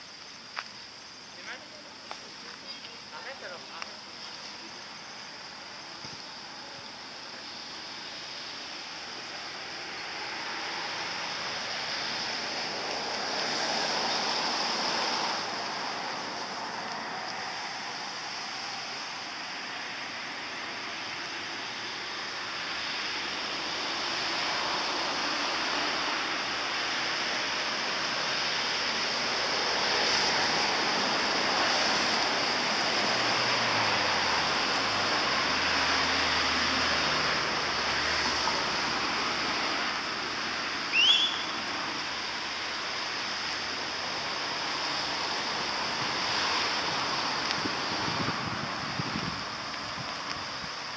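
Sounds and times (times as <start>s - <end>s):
rain falling on wet ground: 0.0s - 50.9s
high rising squeak: 40.9s - 41.6s.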